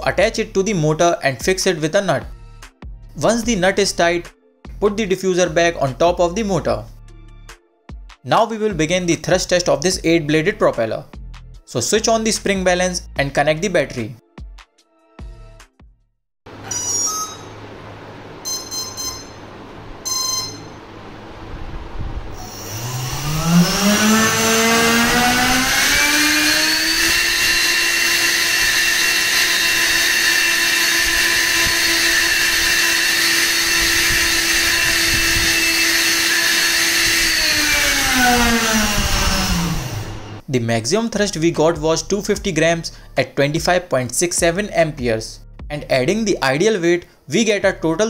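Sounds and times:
electric ducted fan whine: 16.5 - 40.5
short electronic beeps: 16.6 - 17.6, 18.4 - 20.8.

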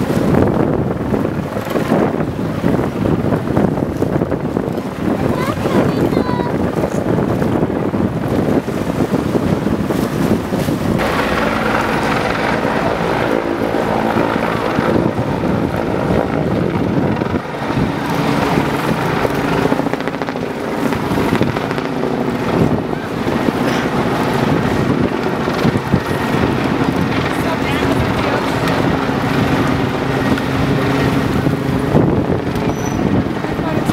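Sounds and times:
wind buffeting microphone: 0.0 - 33.9
engine droning: 11.0 - 32.8.

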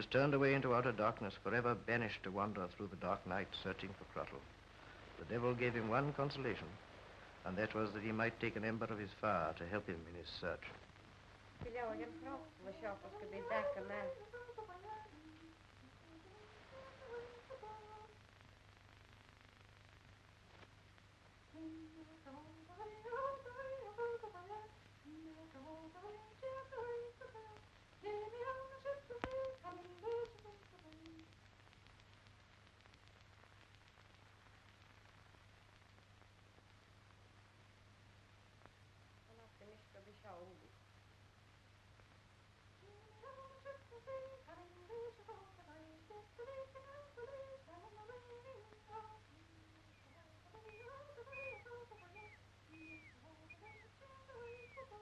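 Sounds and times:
low mains hum and hiss: 0.0 - 55.0
person faintly singing: 11.6 - 18.2, 21.5 - 31.4, 42.8 - 55.0
person humming a slow tune: 13.1 - 18.2, 21.5 - 31.3, 42.8 - 55.0.

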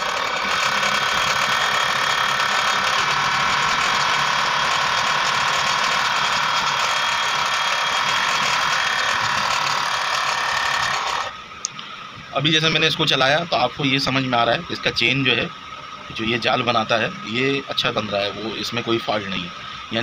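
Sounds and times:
sewing machine running: 0.0 - 11.4.

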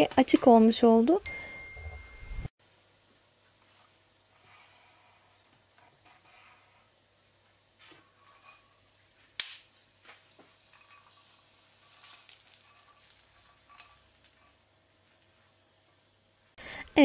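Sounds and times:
nuts pattering onto rice: 9.0 - 16.2.

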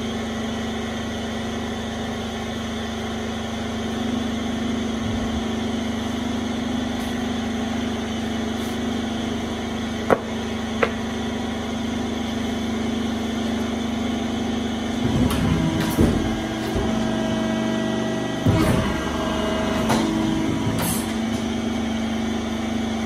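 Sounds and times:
hydraulic pump motor humming: 1.8 - 23.0
wooden boards knocking: 10.1 - 11.0.

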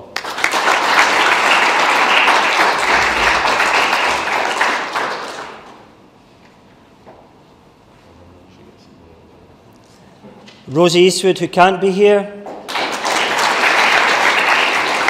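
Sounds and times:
audience applause: 0.0 - 5.8, 12.7 - 15.0.

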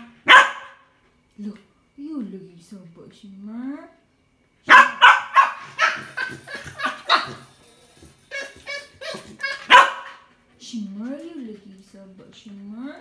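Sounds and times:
small dog barking: 0.2 - 0.8, 4.7 - 6.1, 9.6 - 10.3
dog yipping: 0.3 - 0.8, 4.7 - 7.5, 8.3 - 10.3.

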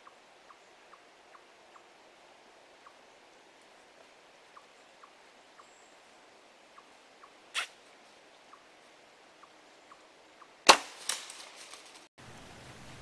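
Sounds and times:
bow firing snap: 7.6 - 7.8
smaller crack: 10.7 - 12.1.

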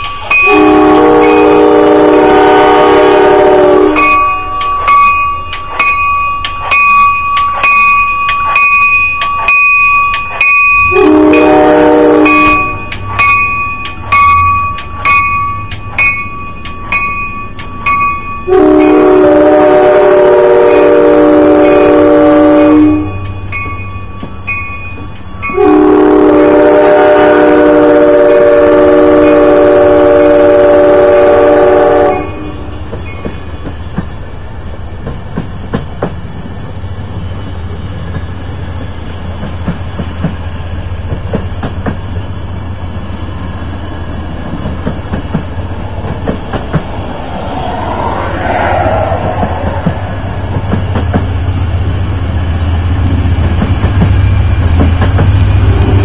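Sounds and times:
locomotive low drone: 0.0 - 56.0
train air horn: 0.4 - 4.4, 10.9 - 12.8, 18.5 - 23.2, 25.5 - 32.7
wheels clicking over rail joints: 37.9 - 42.3, 44.1 - 52.2, 53.0 - 55.7.

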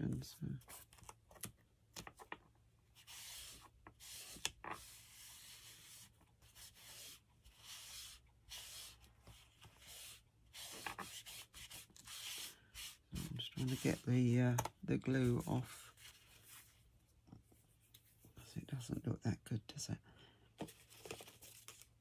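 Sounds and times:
rubbing on paper: 3.0 - 14.1.

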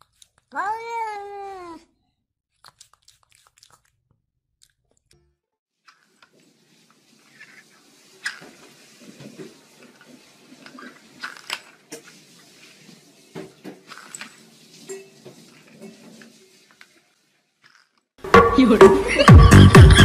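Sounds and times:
cat meowing: 0.5 - 1.9.

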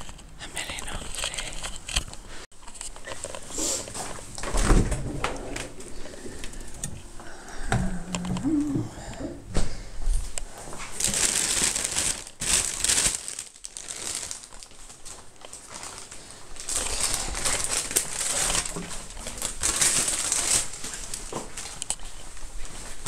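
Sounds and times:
plastic bag crinkling: 10.7 - 22.9.

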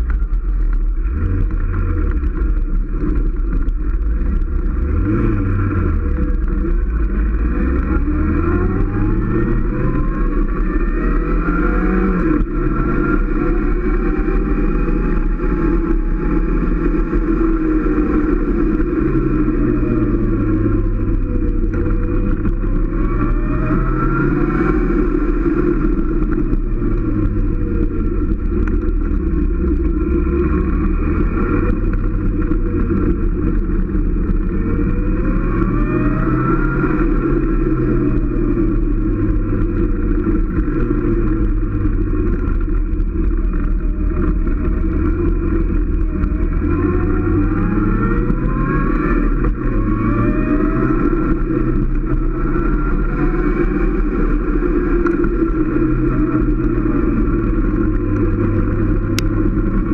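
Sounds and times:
motorcycle engine revving: 0.0 - 59.9
wind and road noise: 0.0 - 59.9.

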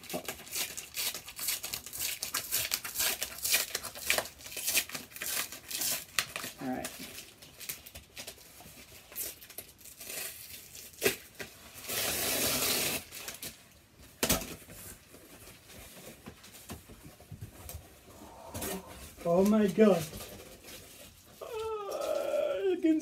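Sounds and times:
tearing sound: 9.1 - 13.6.

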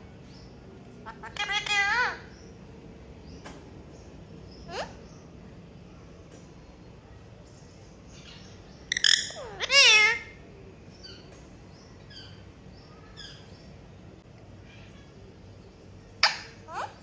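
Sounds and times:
parakeets squawking: 1.0 - 2.6, 4.5 - 5.2, 8.2 - 10.4, 16.2 - 17.0.

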